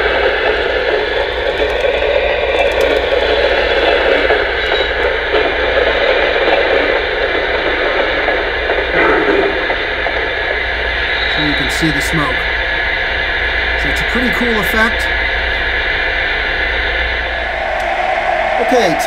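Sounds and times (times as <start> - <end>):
toy train car rattling on track: 1.5 - 4.9
generator running through speaker: 11.2 - 12.6, 13.6 - 15.9, 18.6 - 19.0.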